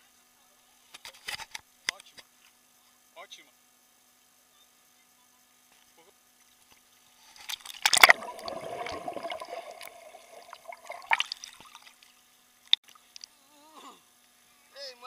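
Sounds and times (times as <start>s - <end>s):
splash into water: 7.6s - 11.9s
underwater gurgling and bubbling: 7.9s - 11.4s.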